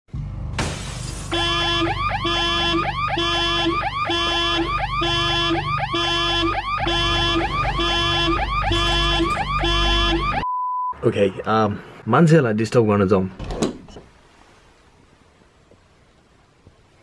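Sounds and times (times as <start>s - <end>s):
electronic alarm tone: 1.4s - 10.9s.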